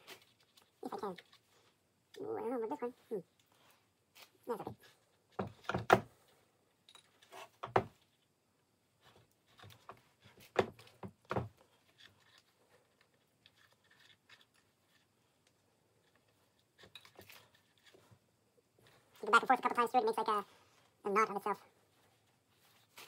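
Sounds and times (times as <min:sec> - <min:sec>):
needle and thread knocks and rubs: 0:09.5 - 0:11.6.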